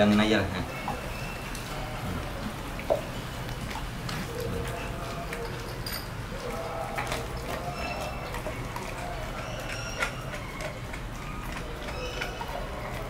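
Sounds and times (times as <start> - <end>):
dog gnawing and chewing bone: 0.0 - 13.0.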